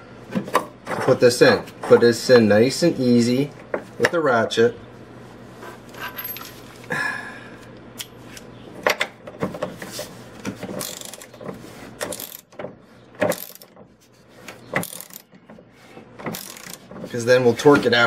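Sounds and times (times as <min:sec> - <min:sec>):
hand ratchet clicking: 0:10.8 - 0:11.3, 0:12.0 - 0:12.5, 0:13.3 - 0:13.7, 0:14.8 - 0:15.3, 0:16.3 - 0:16.9.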